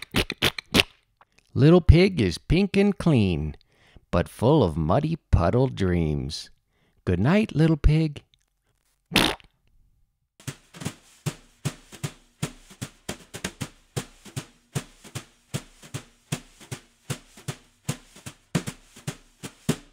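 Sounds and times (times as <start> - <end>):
background music with drum beat: 10.4 - 19.9.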